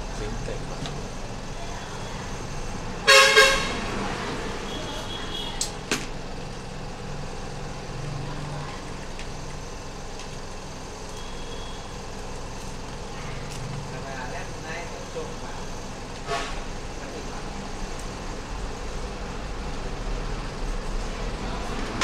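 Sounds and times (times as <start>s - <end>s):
traffic noise: 0.0s - 22.0s
vehicle horn: 3.0s - 3.9s, 4.6s - 5.6s, 11.1s - 11.9s, 16.2s - 16.7s.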